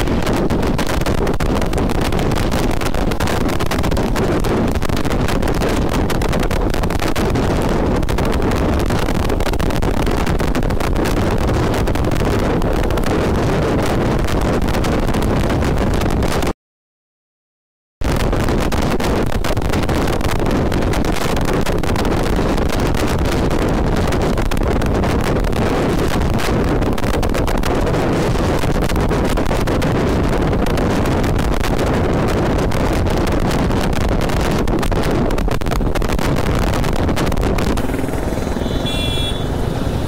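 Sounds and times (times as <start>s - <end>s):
wind buffeting microphone: 0.0s - 16.5s, 18.0s - 40.0s
motorcycle engine: 37.5s - 40.0s.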